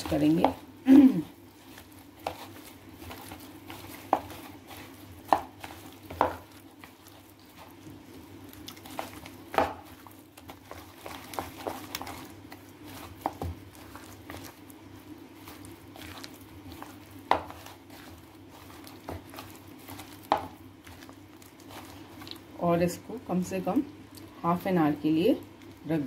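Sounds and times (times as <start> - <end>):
hand squelching wet marinade: 0.0 - 24.4
low steady hum: 0.0 - 26.0.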